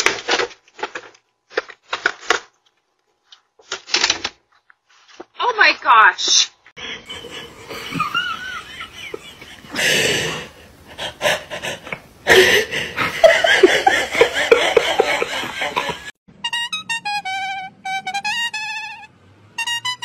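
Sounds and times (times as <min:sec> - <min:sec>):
person laughing: 0:06.8 - 0:16.2.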